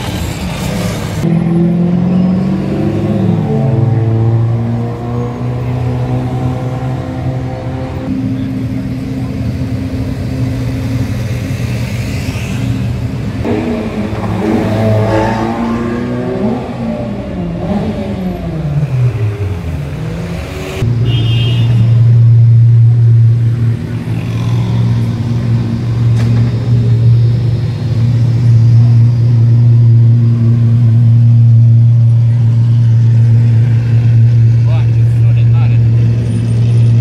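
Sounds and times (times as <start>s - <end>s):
engine running at low revs: 1.0s - 21.0s.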